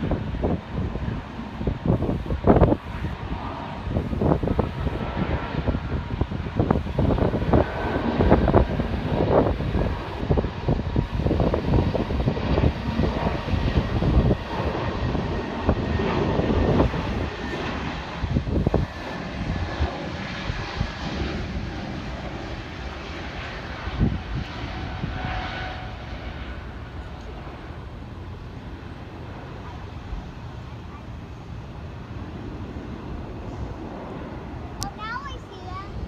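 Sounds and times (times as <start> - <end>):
jet engines roaring: 0.0 - 36.0
wind buffeting microphone: 0.0 - 36.0.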